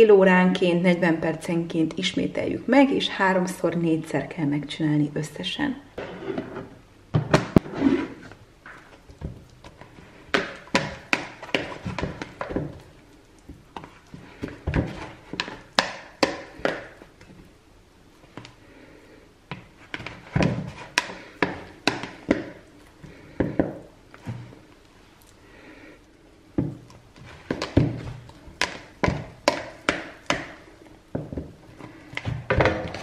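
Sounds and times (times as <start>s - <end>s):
wet dough slapping: 8.6s - 17.5s, 19.5s - 24.8s, 26.5s - 33.0s.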